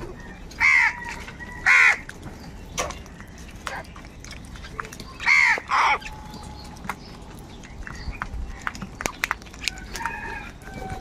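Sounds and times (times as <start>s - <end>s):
crows cawing: 0.6s - 2.1s, 5.2s - 6.0s.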